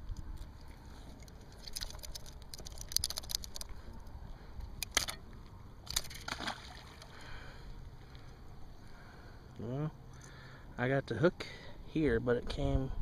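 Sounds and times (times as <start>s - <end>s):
fishing tackle clicks and rattles: 0.0s - 5.2s, 5.8s - 6.5s.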